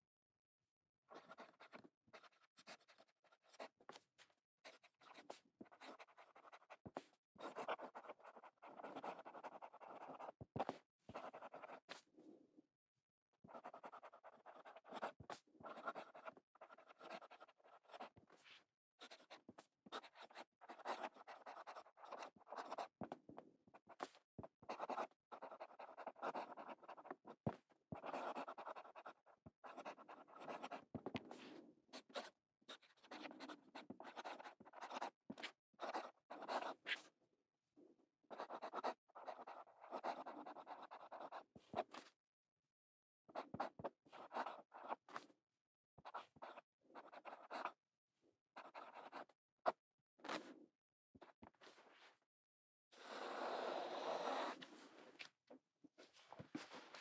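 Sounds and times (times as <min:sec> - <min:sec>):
fountain pen scratching on paper: 0:01.1 - 0:12.1, 0:13.5 - 0:37.1, 0:38.3 - 0:42.2, 0:43.3 - 0:45.3, 0:46.0 - 0:47.8, 0:48.6 - 0:50.5, 0:53.0 - 0:55.4.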